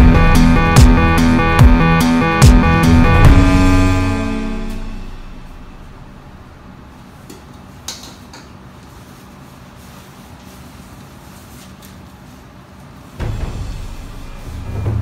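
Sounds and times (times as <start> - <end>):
background music: 0.0 - 6.7, 13.2 - 15.0
steady low hum: 0.0 - 7.2.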